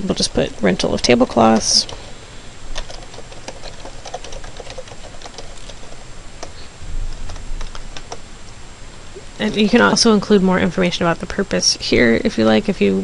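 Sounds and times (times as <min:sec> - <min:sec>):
keyboard typing: 0:00.3 - 0:02.1, 0:02.7 - 0:08.2.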